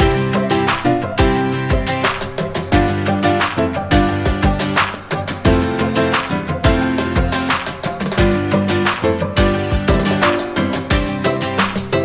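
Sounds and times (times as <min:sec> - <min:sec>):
regular drum strikes: 0:00.0 - 0:12.0.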